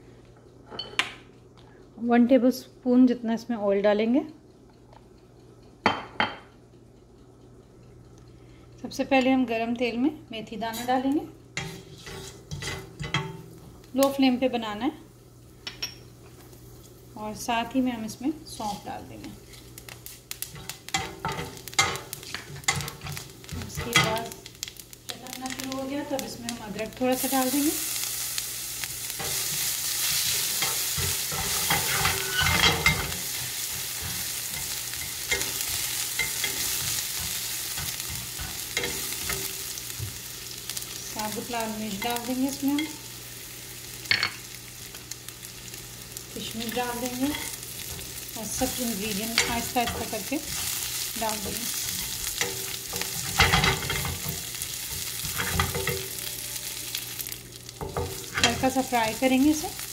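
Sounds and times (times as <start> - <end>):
seeds sizzling in hot oil: 11.5 - 59.9
spoon scraping a pan: 11.6 - 13.4, 29.1 - 40.2, 46.9 - 56.3.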